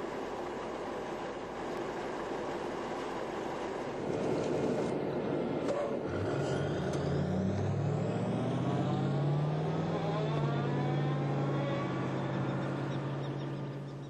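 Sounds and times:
diesel engine pulling away: 3.9s - 14.0s.

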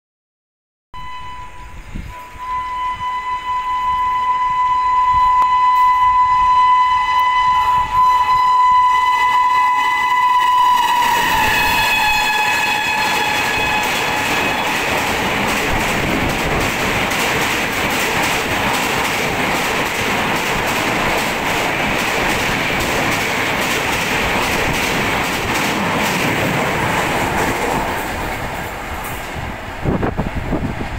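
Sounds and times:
train horn: 1.0s - 15.1s
train wheels clickety-clack: 9.3s - 30.9s.

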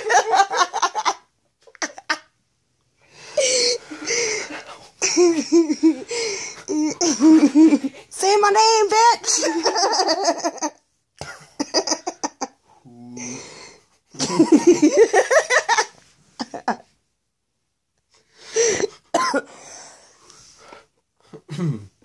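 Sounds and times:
man laughing hard: 14.2s - 16.7s
man coughing: 19.2s - 19.5s.

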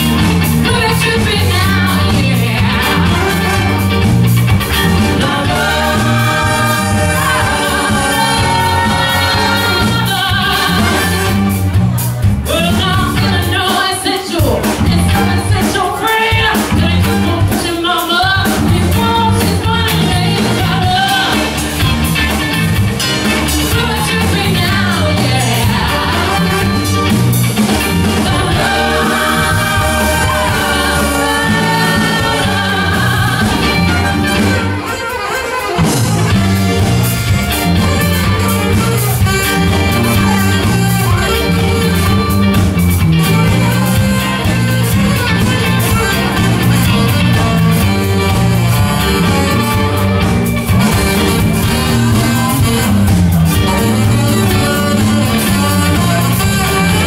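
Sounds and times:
drum kit: 0.0s - 57.0s
horns: 0.0s - 57.0s
live band playing: 0.0s - 57.0s
woman singing lead: 0.6s - 4.1s, 4.7s - 11.5s, 12.5s - 21.6s, 23.5s - 36.8s.

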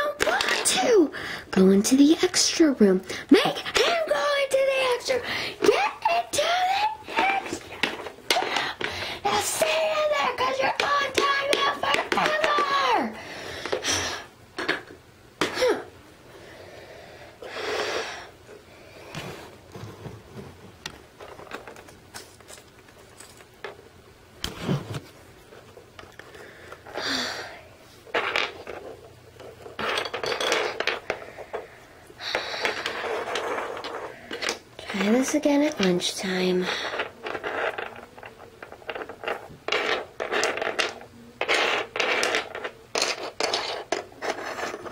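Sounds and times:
plastic toys clattering on floor: 0.0s - 1.0s, 5.6s - 13.9s, 21.2s - 23.8s, 28.1s - 36.0s, 36.6s - 44.9s
toys scraping on wooden floor: 7.1s - 13.0s, 32.3s - 35.1s, 36.6s - 44.9s.

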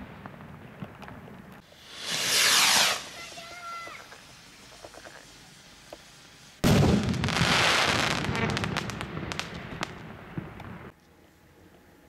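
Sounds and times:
firework crackling: 0.0s - 10.9s
firework bang: 1.8s - 4.1s, 6.6s - 10.9s.

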